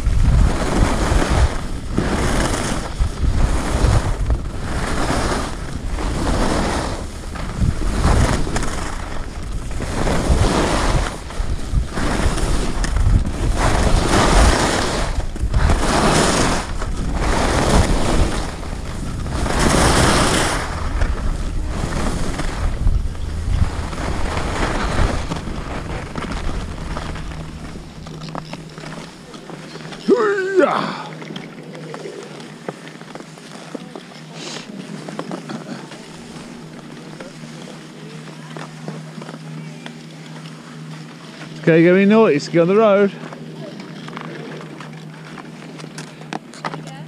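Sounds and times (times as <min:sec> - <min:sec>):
wind on microphone: 0:00.0 - 0:30.0
skis scraping over snow: 0:00.0 - 0:47.0.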